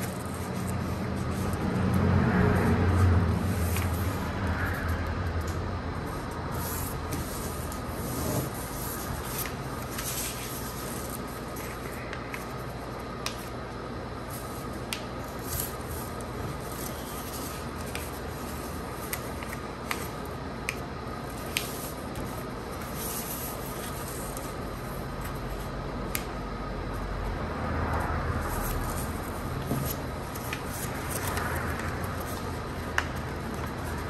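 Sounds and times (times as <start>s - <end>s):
steady background hum: 0.0s - 34.0s
paper rustling and crinkling: 6.6s - 12.7s.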